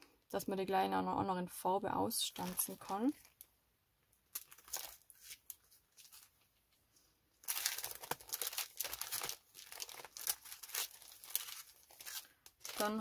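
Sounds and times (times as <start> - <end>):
plastic packaging crinkling: 2.3 - 3.5, 4.3 - 6.5, 7.4 - 13.0.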